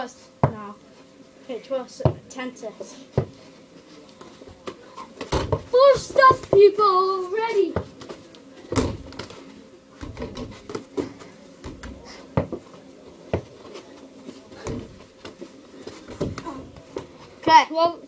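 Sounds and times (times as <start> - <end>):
feet and bodies bumping: 3.0 - 17.5
small ball hitting backboard and rim: 5.2 - 6.6.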